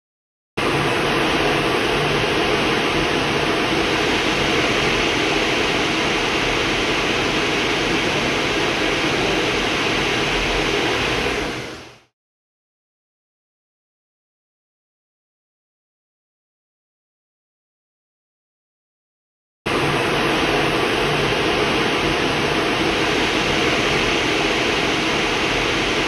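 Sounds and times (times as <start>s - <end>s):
cockpit airflow and engine rushing: 0.6s - 12.1s, 19.7s - 26.0s.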